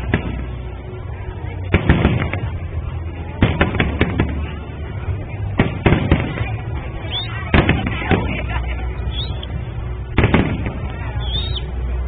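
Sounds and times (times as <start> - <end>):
steady low rumble: 0.0 - 12.0
firework shells bursting: 10.1 - 11.5.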